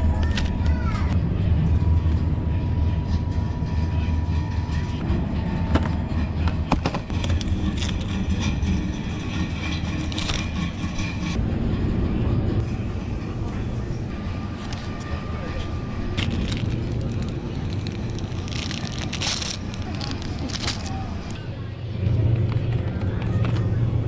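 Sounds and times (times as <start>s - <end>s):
low rumble of store machinery: 0.0s - 24.0s
plastic packaging clicks: 16.2s - 21.4s.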